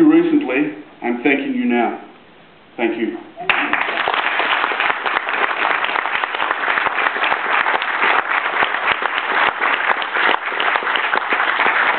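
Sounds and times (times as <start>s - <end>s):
audience applauding: 3.5s - 11.9s.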